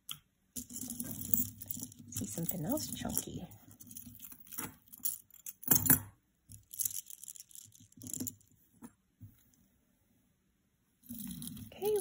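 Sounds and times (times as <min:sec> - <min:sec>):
metal chain jingling: 0:00.6 - 0:06.0
plastic chain links clacking: 0:00.6 - 0:08.5.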